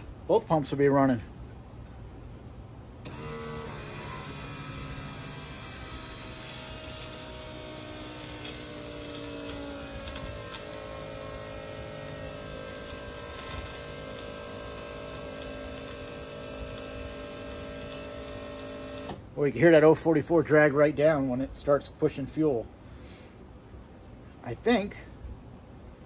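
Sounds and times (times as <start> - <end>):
electric fuel pump whining: 3.0 - 19.3.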